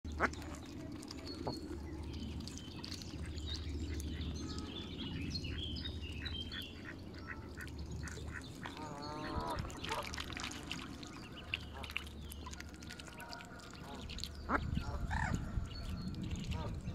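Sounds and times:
ducklings peeping: 0.1s - 16.9s.

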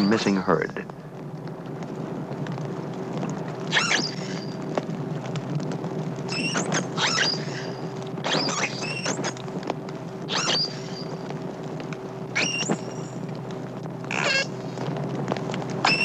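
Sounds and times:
steady low hum: 0.0s - 16.0s
dolphin whistling underwater: 3.7s - 4.6s, 6.3s - 9.3s, 10.3s - 11.1s, 12.4s - 13.2s.

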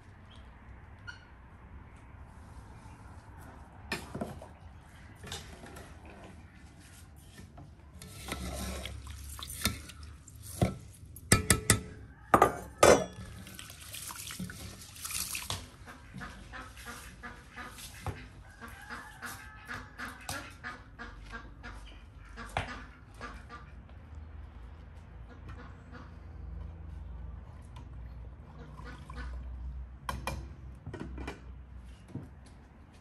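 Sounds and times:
spoon scraping wet rice: 7.9s - 11.3s
hands swishing rice in water: 8.0s - 11.0s, 13.3s - 18.0s
sharp clacks against basin: 11.2s - 12.0s.

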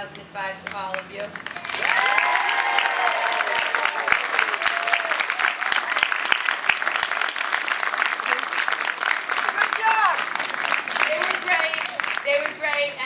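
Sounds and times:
audience clapping: 0.6s - 13.0s
people cheering: 1.6s - 12.0s.

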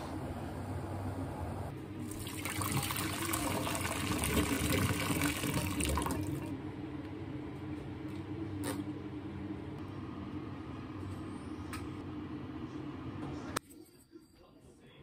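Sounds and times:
water splashing through colander: 2.1s - 6.5s.

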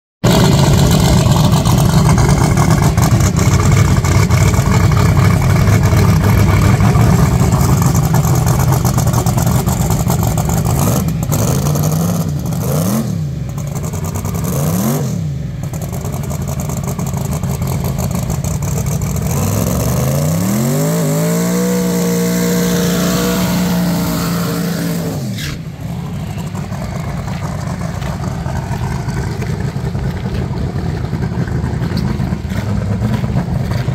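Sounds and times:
drag car engine revving: 0.2s - 33.9s.

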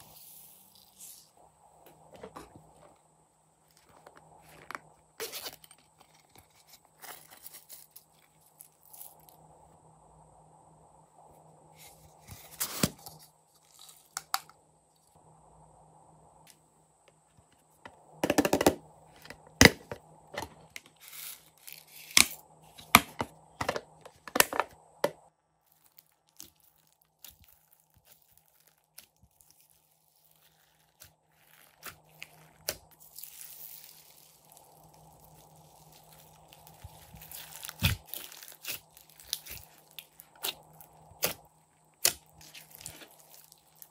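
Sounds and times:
slime crackling when stretched: 25.7s - 41.4s.

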